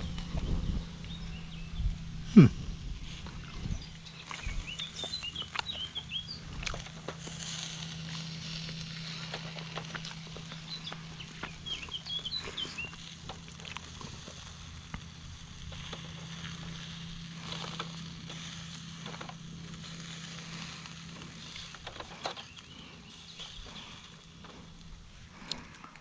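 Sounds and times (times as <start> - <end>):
small bird chirping: 0.0 - 2.5, 3.2 - 14.3, 19.0 - 24.6
steady low hum: 0.0 - 26.0.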